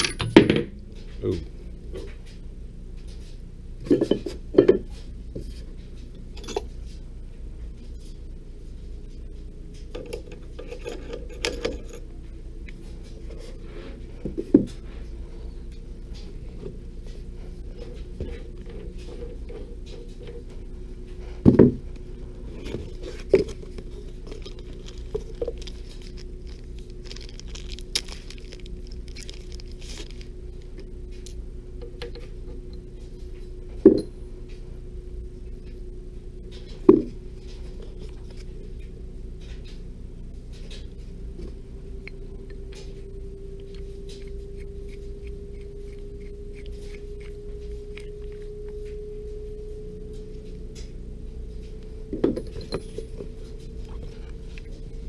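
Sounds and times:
metal parts knocking and clinking: 0:00.0 - 0:00.7
steady hum: 0:00.0 - 0:55.0.

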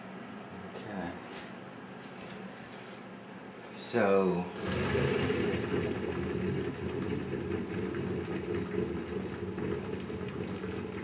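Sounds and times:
coffee maker bubbling: 0:04.5 - 0:11.0.

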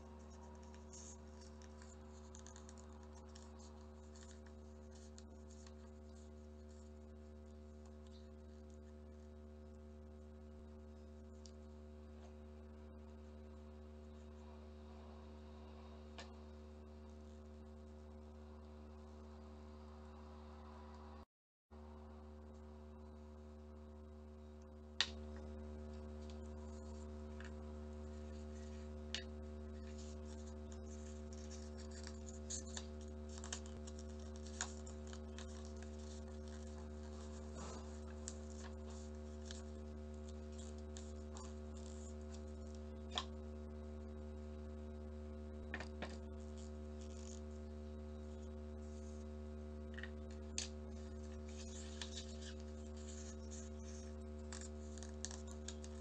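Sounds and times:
steady low hum: 0:00.0 - 0:56.0
paper rustling: 0:00.2 - 0:07.0, 0:26.0 - 0:43.3, 0:50.0 - 0:56.0.

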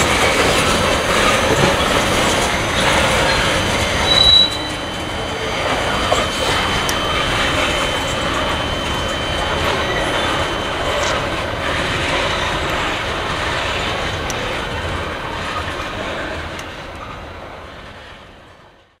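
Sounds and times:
high wheel squeal: 0:00.0 - 0:14.5
train wheels rumbling on rails: 0:00.0 - 0:19.0.

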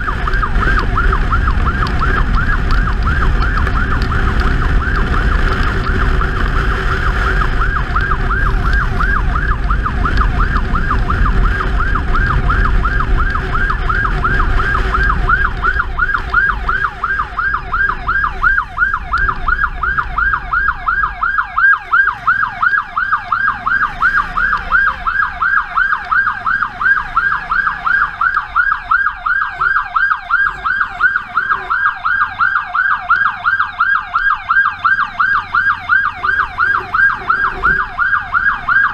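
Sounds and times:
wind noise: 0:00.0 - 0:21.3
electronic yelp siren: 0:00.0 - 0:38.9
motorcycle engine rumble: 0:00.0 - 0:38.9.

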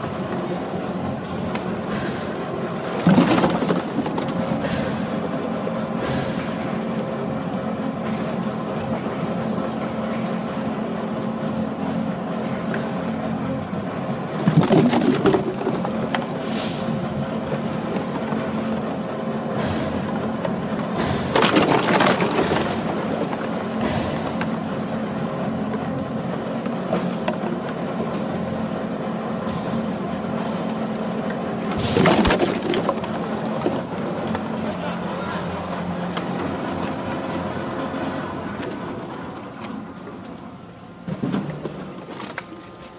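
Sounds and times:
conveyor machinery humming: 0:00.0 - 0:42.9
plastic bottles clattering: 0:02.7 - 0:04.9, 0:14.3 - 0:16.4, 0:21.0 - 0:24.6, 0:31.8 - 0:34.6.

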